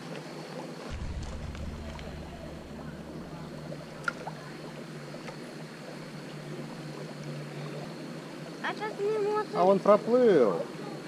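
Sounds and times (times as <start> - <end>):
stream running over rocks: 0.0 - 11.0
wind rumble on microphone: 0.9 - 5.1.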